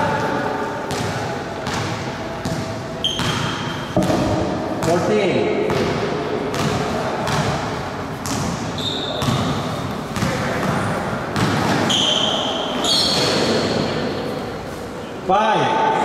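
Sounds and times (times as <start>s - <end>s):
sneakers squeaking on court: 0.9s - 4.2s, 8.2s - 14.6s
basketball dribbling: 0.9s - 12.0s.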